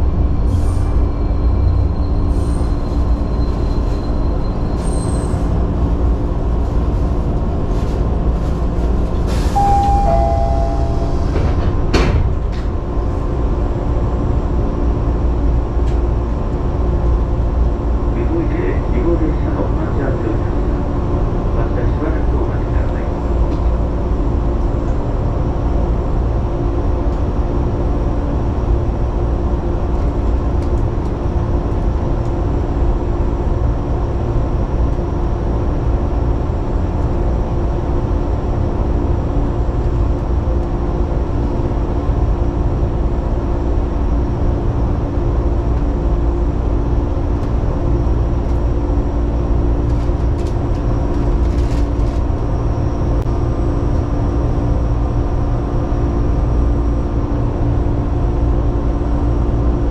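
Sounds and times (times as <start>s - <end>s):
electric train equipment hum: 5.6s - 18.4s.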